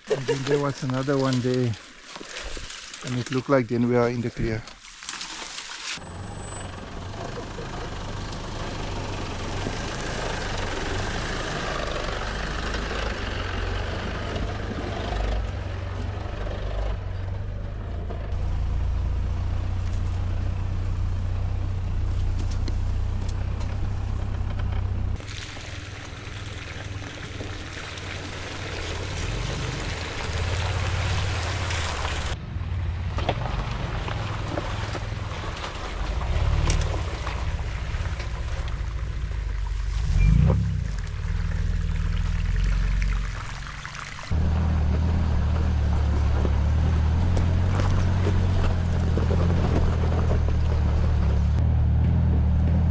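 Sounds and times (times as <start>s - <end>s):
engine low rumble: 6.0s - 52.9s.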